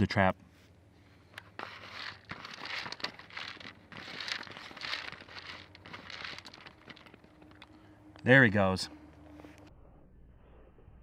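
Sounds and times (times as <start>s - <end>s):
plastic bottle crinkling: 1.4s - 7.8s.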